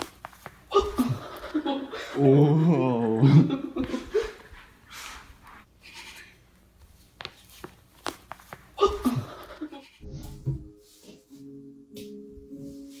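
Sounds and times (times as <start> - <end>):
breathy laughing and panting: 1.1 - 6.3, 9.1 - 10.0.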